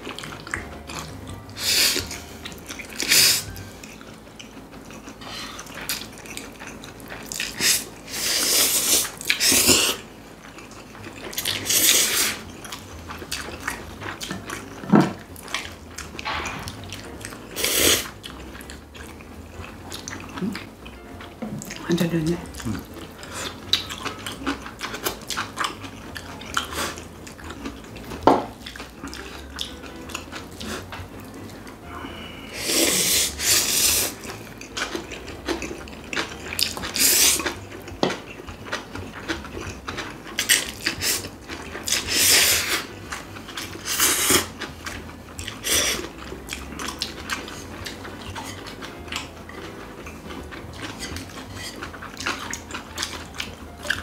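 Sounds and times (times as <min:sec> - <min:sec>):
chewing: 0:00.0 - 0:54.0
slurping noodles: 0:03.0 - 0:03.6, 0:07.4 - 0:10.0, 0:11.4 - 0:12.5, 0:17.5 - 0:18.1, 0:32.5 - 0:34.2, 0:36.9 - 0:37.6, 0:41.9 - 0:42.9, 0:43.8 - 0:44.6, 0:45.6 - 0:46.1.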